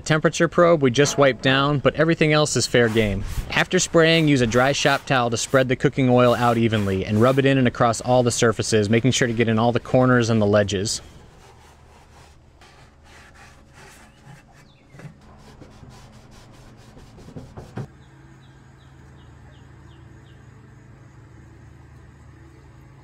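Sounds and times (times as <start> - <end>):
steady low hum: 0.0 - 23.0
towel wiping metal: 2.1 - 17.9.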